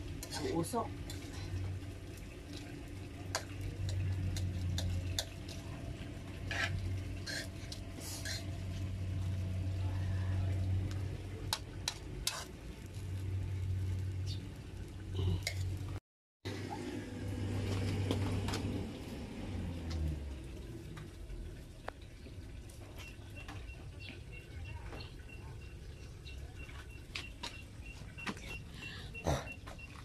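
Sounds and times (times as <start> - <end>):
metal spoon scraping pan: 0.1 - 1.4, 6.3 - 8.9, 11.8 - 12.5.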